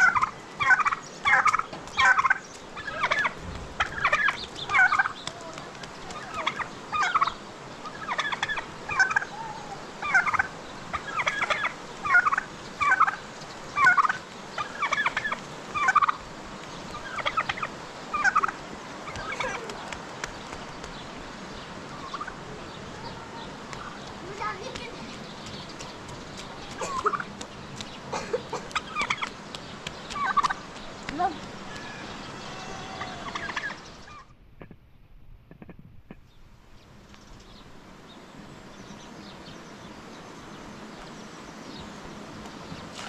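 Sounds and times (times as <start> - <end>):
turkeys gobbling: 0.0 - 19.9, 21.9 - 24.6, 26.6 - 27.5, 28.1 - 29.4, 30.1 - 30.7, 31.6 - 34.8.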